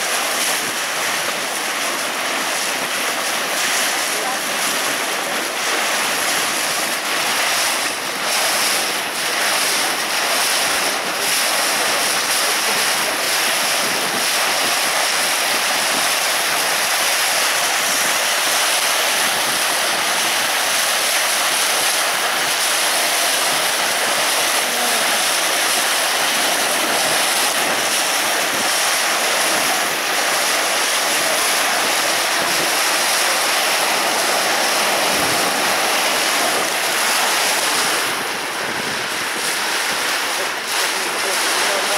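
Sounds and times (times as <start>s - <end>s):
water rushing along boat hull: 0.0s - 41.9s
wind on microphone: 0.0s - 41.9s.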